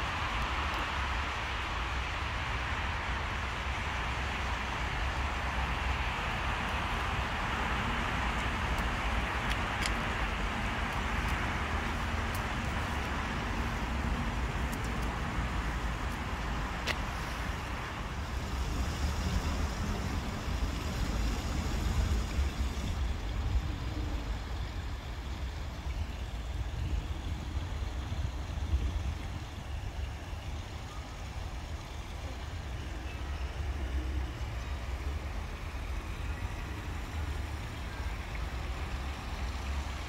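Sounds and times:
distant road traffic: 0.0s - 40.0s.

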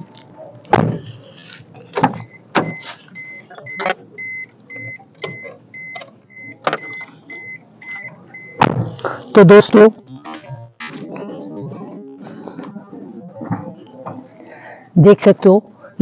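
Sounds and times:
car warning chime beeping: 1.8s - 10.9s
sharp thuds: 8.6s - 9.2s.

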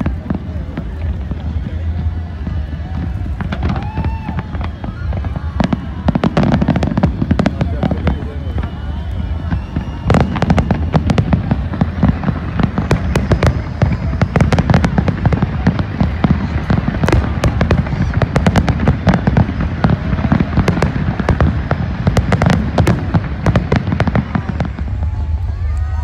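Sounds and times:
fireworks cracking and banging: 0.0s - 26.0s.

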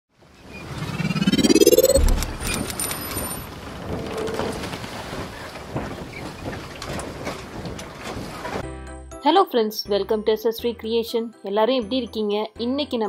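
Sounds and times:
rising whoosh: 0.5s - 3.0s
low boom: 0.8s - 2.7s.

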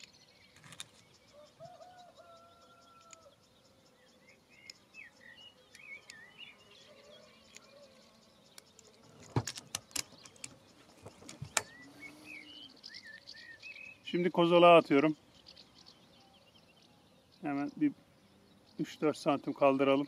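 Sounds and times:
small birds chirping: 0.0s - 20.0s
sharp clicks: 8.5s - 11.8s.

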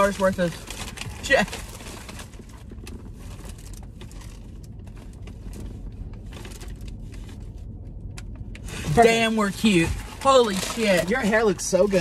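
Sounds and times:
bags crinkling and rustling: 0.0s - 7.5s
low steady hum: 0.0s - 12.0s.

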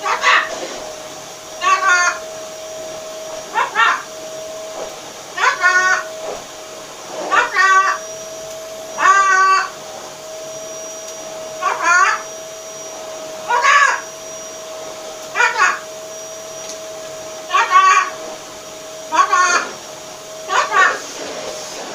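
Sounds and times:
macaw calls: 3.5s - 4.1s, 5.4s - 6.1s, 7.3s - 8.2s, 8.9s - 9.8s, 11.6s - 12.4s, 13.4s - 14.2s, 15.3s - 15.9s, 17.5s - 18.2s, 19.1s - 19.7s.

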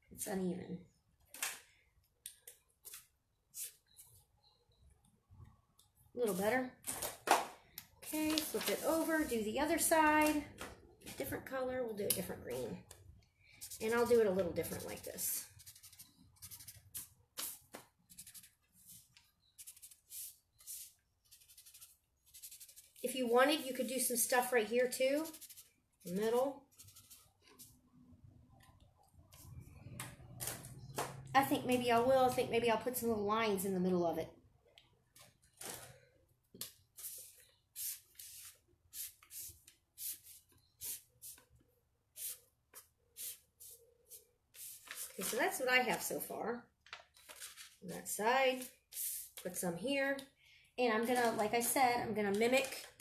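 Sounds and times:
marker scratching on paper: 13.6s - 23.3s, 24.8s - 27.8s.

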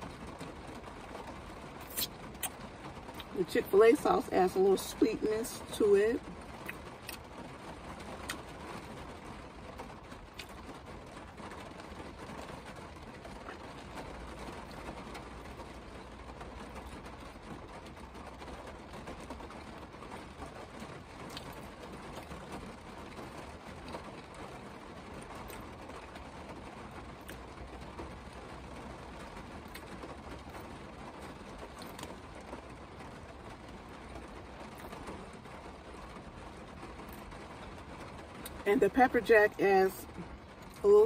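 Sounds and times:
rain pattering on car: 0.0s - 41.0s
chewing crispy food: 10.3s - 10.7s, 21.3s - 22.3s, 27.2s - 27.5s, 29.7s - 29.9s, 31.7s - 32.1s.

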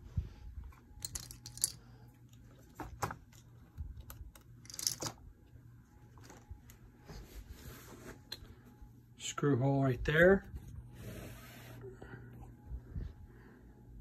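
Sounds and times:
tools clicking and knocking: 1.0s - 1.8s, 4.0s - 5.2s.

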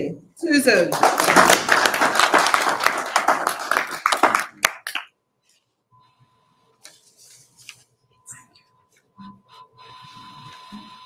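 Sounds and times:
small group applauding: 0.8s - 5.2s.

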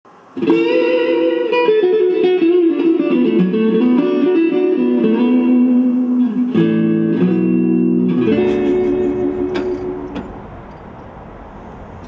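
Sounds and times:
electric guitar melody: 0.2s - 11.0s.

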